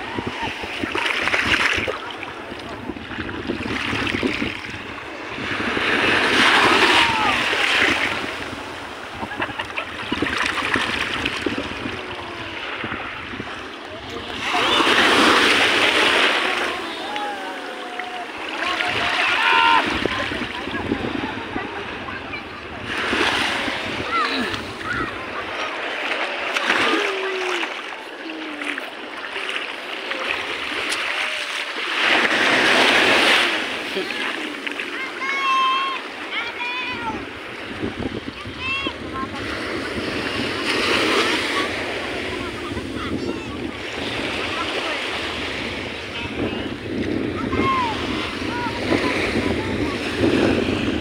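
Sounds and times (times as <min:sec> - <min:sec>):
small waves lapping: 0:00.0 - 0:51.0
wave breaking on sand: 0:00.0 - 0:51.0.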